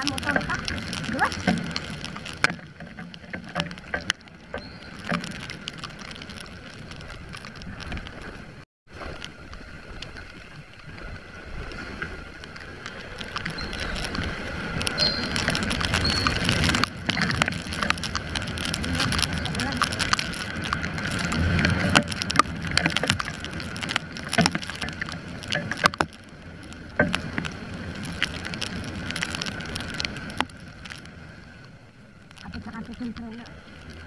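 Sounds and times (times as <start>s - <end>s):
raindrops ticking on camera: 0.0s - 34.0s
wind: 0.0s - 34.0s
water spray from wet road: 9.1s - 31.5s.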